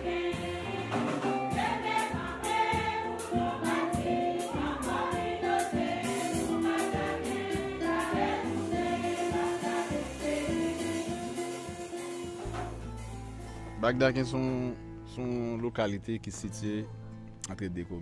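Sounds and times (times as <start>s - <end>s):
voices singing over a beat: 0.0s - 11.8s.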